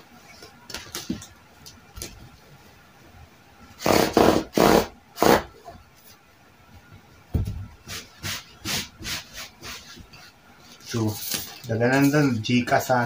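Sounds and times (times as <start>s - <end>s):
chalk scraping on denim: 7.9s - 10.1s.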